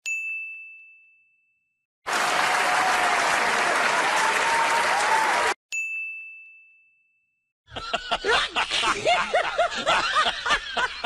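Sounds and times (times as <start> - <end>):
crowd clapping and applauding: 2.1 - 5.6.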